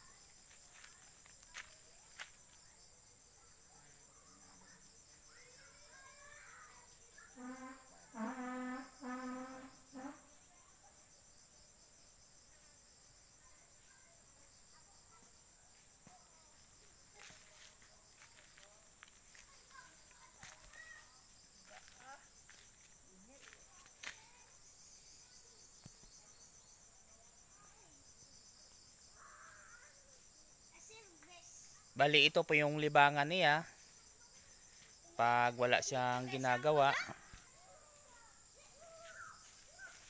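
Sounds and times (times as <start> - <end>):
insects chirring: 0.0 - 40.0
short even-pitched calls: 6.3 - 10.4.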